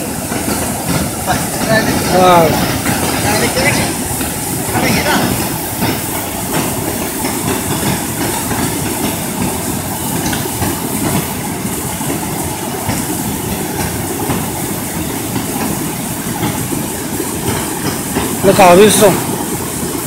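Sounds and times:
fast-flowing river water roaring: 0.0s - 20.0s.

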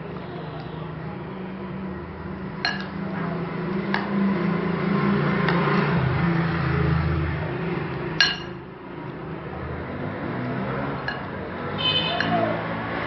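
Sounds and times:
spoon clinking against glass: 8.2s - 8.6s.

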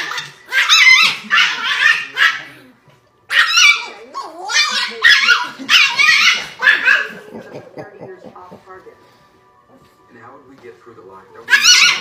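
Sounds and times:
small dog yapping: 0.0s - 2.6s, 3.3s - 7.1s, 11.4s - 12.0s.

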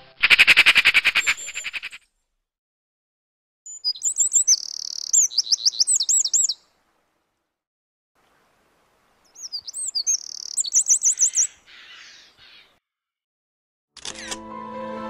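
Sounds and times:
wren singing rapid trills: 3.7s - 6.6s, 9.3s - 11.6s.

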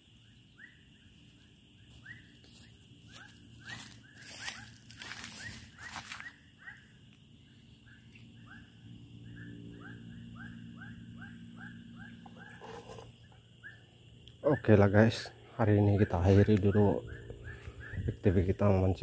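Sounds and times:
small animal chirping: 3.1s - 6.9s, 7.8s - 13.9s.

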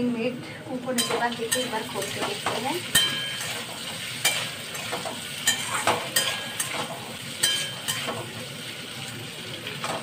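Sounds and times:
hot oil sizzling: 0.7s - 10.0s
metal spatula scraping pan: 1.0s - 8.3s.

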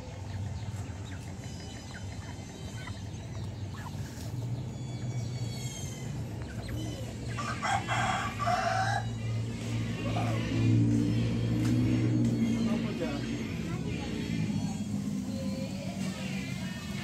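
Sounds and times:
rooster crowing: 7.3s - 9.2s.

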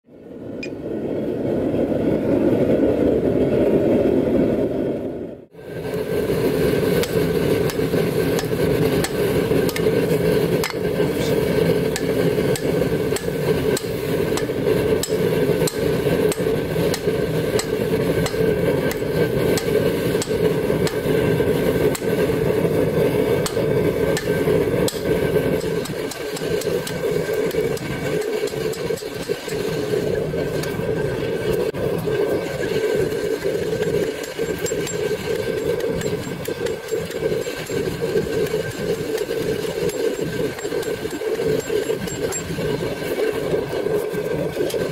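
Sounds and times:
continuous mechanical drone: 0.0s - 44.9s
hammer striking hot steel: 5.8s - 30.8s, 33.1s - 43.0s.

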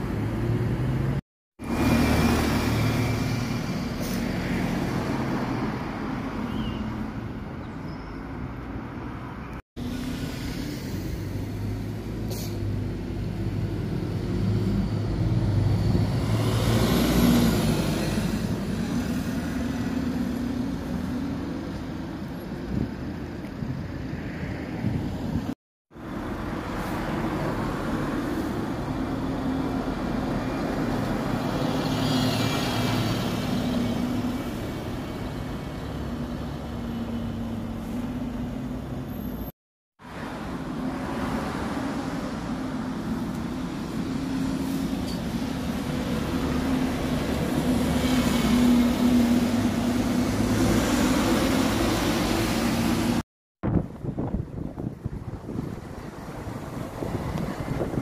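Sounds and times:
buses driving past: 0.0s - 58.0s.

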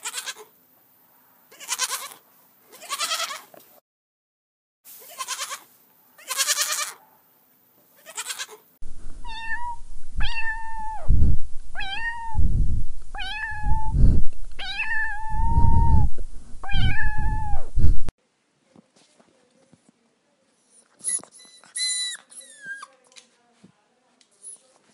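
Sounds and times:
goat kids bleating: 0.0s - 0.5s, 1.5s - 3.5s, 5.0s - 7.0s, 8.0s - 8.6s
cat meowing: 1.5s - 2.2s, 2.8s - 3.4s, 6.2s - 7.0s, 9.2s - 11.1s, 11.8s - 12.4s, 13.1s - 14.0s, 14.6s - 17.7s
low rumbling noise: 8.8s - 18.1s.

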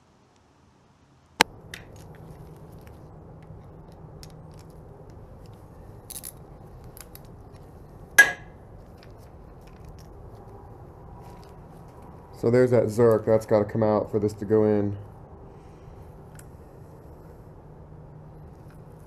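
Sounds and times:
low shop hum: 1.4s - 19.0s
sharp metallic clink: 8.2s - 8.6s.

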